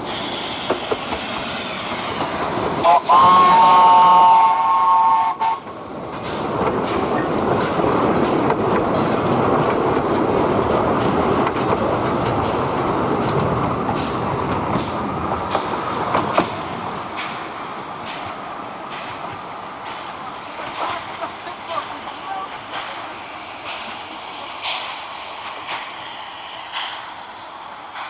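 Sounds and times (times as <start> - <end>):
train wheels rumbling on rail: 0.0 - 28.0
steam locomotive whistle: 2.8 - 5.7.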